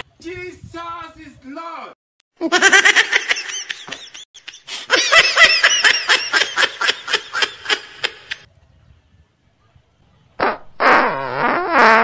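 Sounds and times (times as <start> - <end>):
high-pitched laughter: 2.4 - 8.5.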